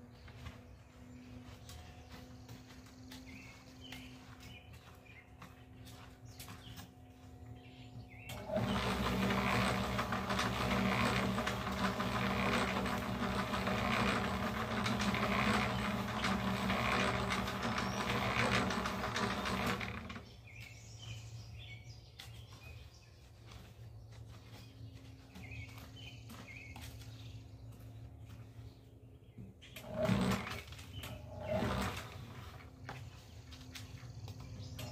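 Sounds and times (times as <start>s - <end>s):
motor hum: 0.0s - 34.9s
electric cement mixer churning: 8.0s - 20.7s, 29.7s - 34.9s.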